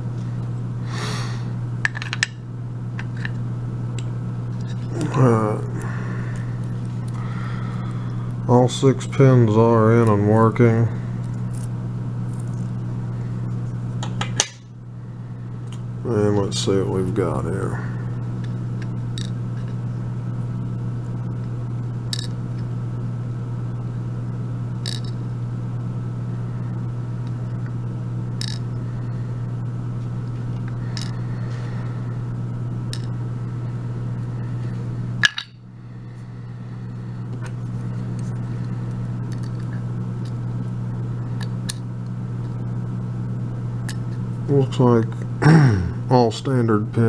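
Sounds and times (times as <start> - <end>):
low hum: 0.0 - 47.0.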